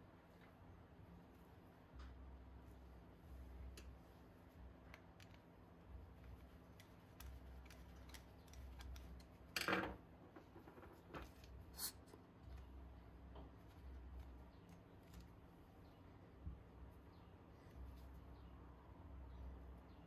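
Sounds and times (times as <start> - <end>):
faint metal clicks and handling: 4.8 - 12.7.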